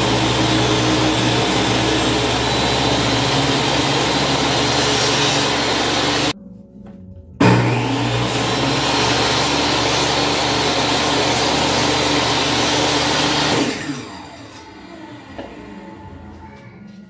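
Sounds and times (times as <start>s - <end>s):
saw blade cutting wood: 0.0s - 6.4s, 7.4s - 15.8s
table saw motor whine: 0.0s - 6.4s, 7.4s - 16.4s.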